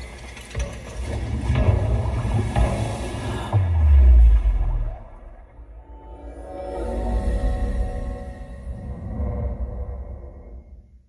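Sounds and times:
cinema intro music: 0:00.8 - 0:11.0.

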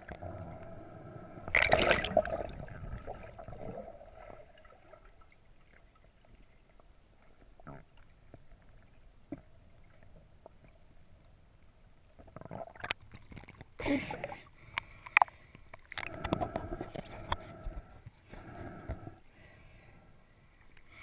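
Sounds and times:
underwater gurgling water: 0:00.0 - 0:11.3, 0:12.2 - 0:18.0.

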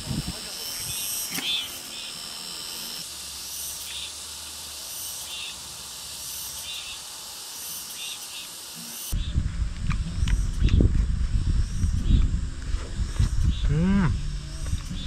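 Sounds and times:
meat sizzling on a grill: 0:00.0 - 0:09.2.

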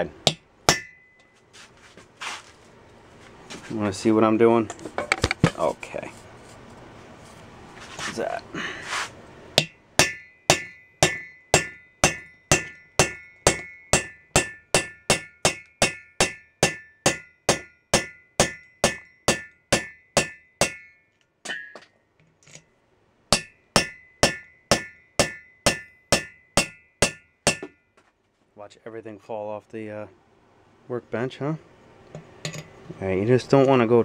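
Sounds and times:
hammer blows on metal: 0:09.6 - 0:21.8.

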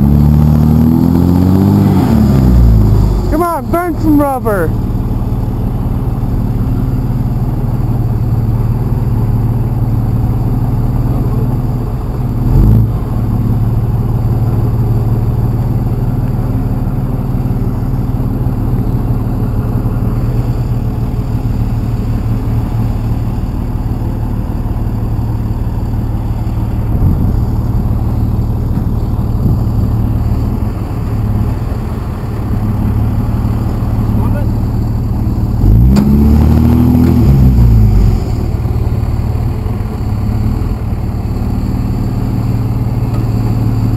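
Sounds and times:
pickup engine revving high: 0:00.0 - 0:08.6, 0:26.2 - 0:39.5.

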